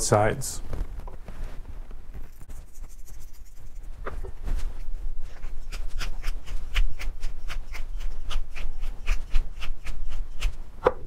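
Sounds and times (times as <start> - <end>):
pepper mill grinding: 2.4 - 3.9, 5.4 - 10.5.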